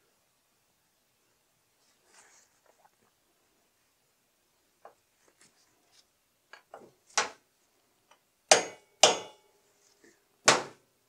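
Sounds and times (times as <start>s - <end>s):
hammer tapping metal punch: 8.5s - 9.4s.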